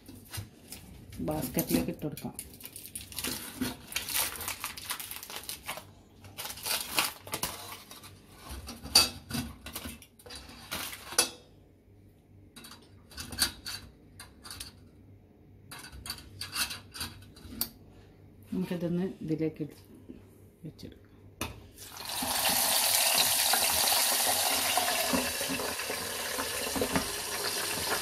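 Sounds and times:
aluminium foil crinkling: 0:00.1 - 0:08.4, 0:09.7 - 0:11.3.

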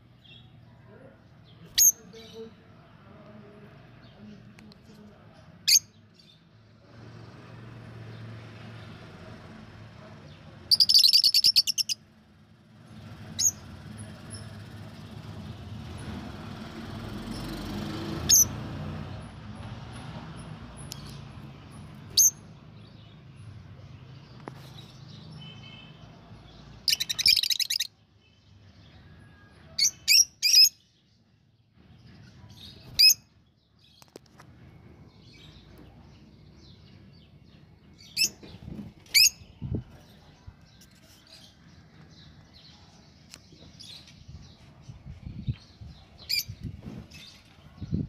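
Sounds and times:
budgerigars chirping: 0:10.7 - 0:12.0, 0:26.9 - 0:27.9.

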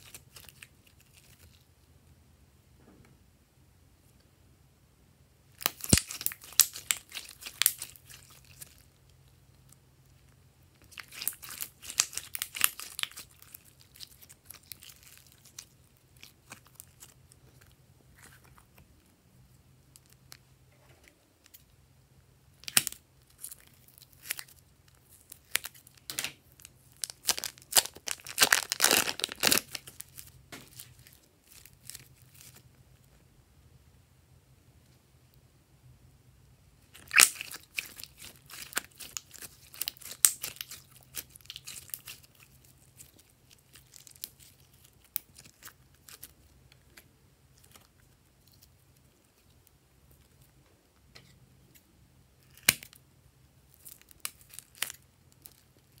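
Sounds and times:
slime crackling and popping: 0:05.5 - 0:09.1, 0:10.7 - 0:18.7, 0:22.6 - 0:32.6, 0:36.8 - 0:50.4, 0:52.4 - 0:53.0, 0:53.7 - 0:56.0.

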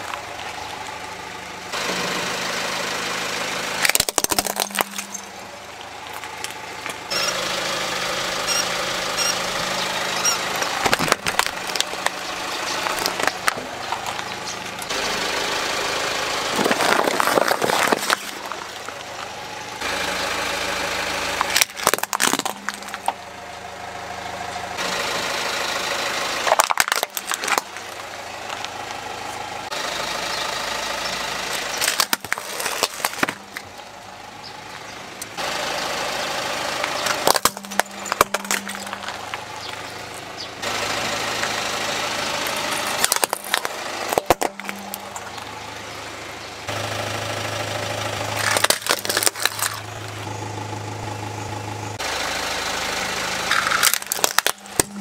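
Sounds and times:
car engine idling: 0:00.0 - 0:55.0
plastic toys cracking and snapping: 0:03.8 - 0:05.2, 0:10.8 - 0:12.2, 0:12.8 - 0:14.3, 0:16.6 - 0:18.7, 0:21.4 - 0:23.2, 0:26.4 - 0:27.9, 0:31.6 - 0:33.7, 0:37.0 - 0:39.4, 0:42.9 - 0:45.4, 0:48.4 - 0:49.9, 0:53.5 - 0:55.0.

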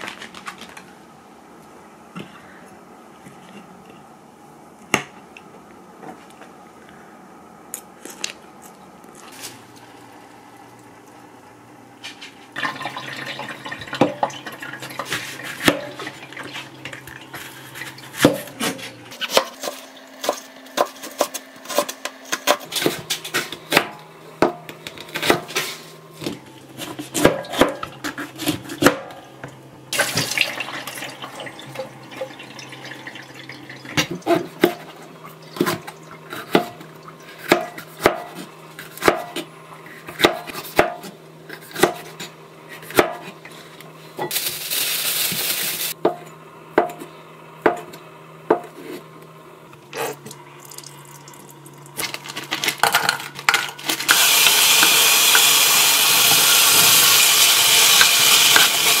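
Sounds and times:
knife chopping on cutting board: 0:26.2 - 0:29.2, 0:35.6 - 0:36.8, 0:37.4 - 0:43.3.

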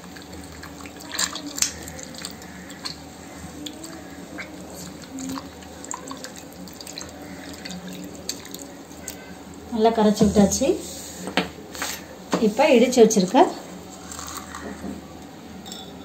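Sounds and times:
small splashes and drips: 0:00.0 - 0:09.3
wet squelching of mashed tomatoes: 0:00.0 - 0:09.4.

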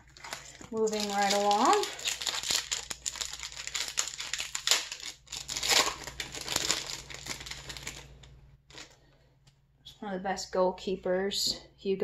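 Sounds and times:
card pack wrapper crinkling: 0:00.0 - 0:09.0.

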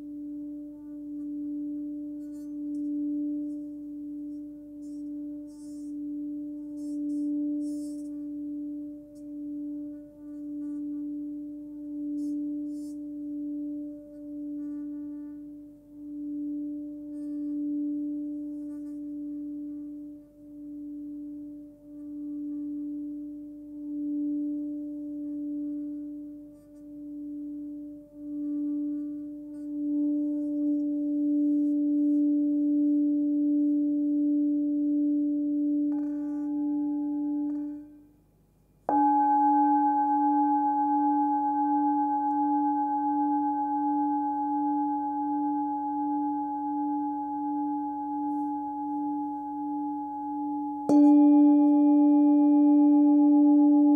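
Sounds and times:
singing bowl humming: 0:00.0 - 0:38.1, 0:38.8 - 0:53.9
singing bowl struck and ringing: 0:27.0 - 0:38.0, 0:38.9 - 0:53.9.

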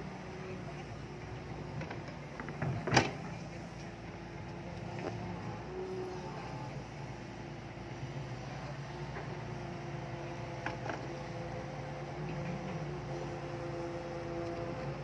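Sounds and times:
construction machine engine droning: 0:00.0 - 0:15.0.

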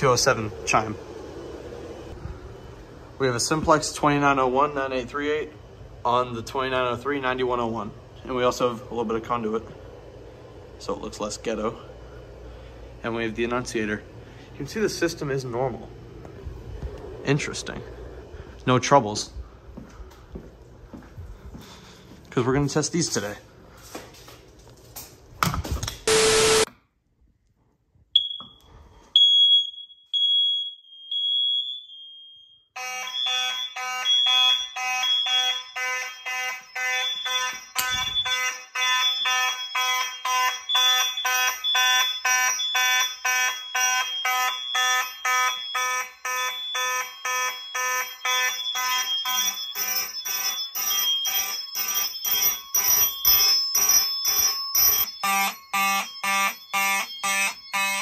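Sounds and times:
low buzz: 0:00.0 - 0:18.6
fire alarm horns pulsing: 0:26.1 - 0:26.7, 0:28.2 - 0:58.0
smoke alarm beeping: 0:26.1 - 0:26.7, 0:28.2 - 0:58.0
buzzing mechanical horn: 0:55.2 - 0:58.0.

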